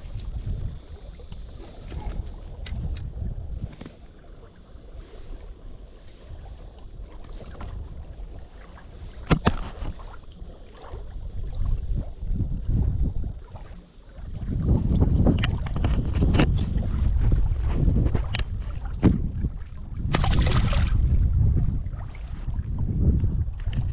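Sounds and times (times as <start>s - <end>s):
wind buffeting microphone: 0.0s - 23.9s.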